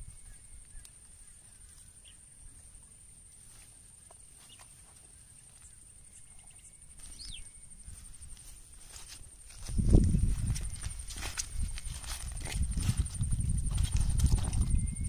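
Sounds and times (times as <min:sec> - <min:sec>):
bird chirp: 0:00.0 - 0:08.1
insects buzzing: 0:00.0 - 0:15.0
mesh bag ticks and rustles: 0:07.9 - 0:15.0.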